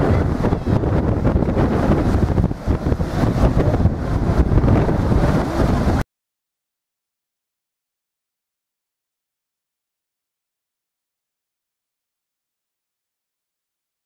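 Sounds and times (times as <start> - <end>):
breaking surf: 0.0 - 6.0
wind buffeting microphone: 0.0 - 6.0.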